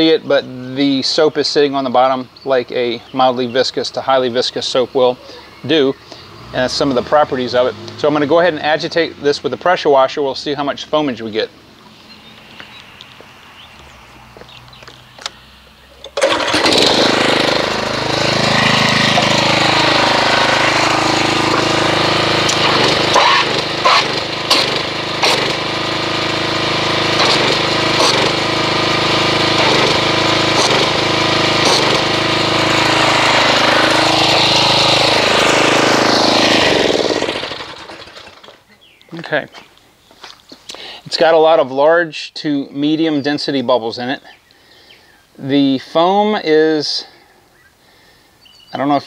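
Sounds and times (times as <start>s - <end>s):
pressure washer jetting water: 16.0s - 38.4s.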